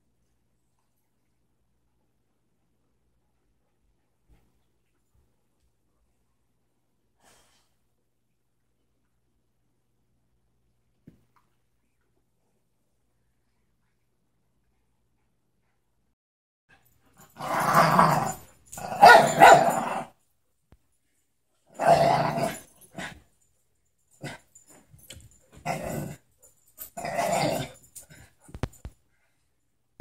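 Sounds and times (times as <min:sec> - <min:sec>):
dogs play-growling: 0:17.2 - 0:20.1, 0:21.8 - 0:23.2, 0:25.5 - 0:26.2, 0:26.8 - 0:28.3.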